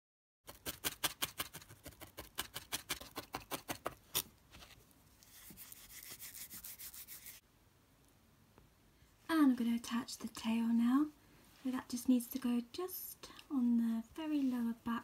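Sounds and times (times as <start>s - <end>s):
soft rubbing hiss of wool: 5.1s - 7.4s, 10.9s - 12.4s, 14.1s - 14.9s.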